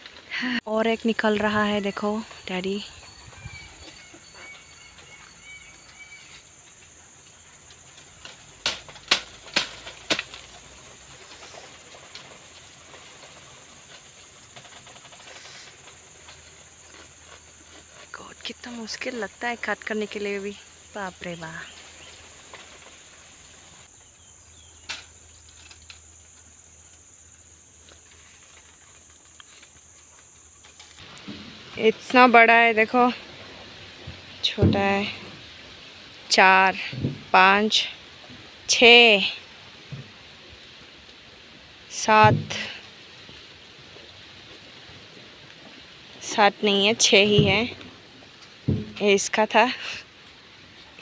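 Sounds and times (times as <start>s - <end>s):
insects trilling: 0.0s - 51.0s
faint bird chirps: 1.4s - 6.5s
faint clicks and rustles: 2.1s - 37.4s
bamboo cracking: 6.6s - 19.4s, 21.7s - 31.7s.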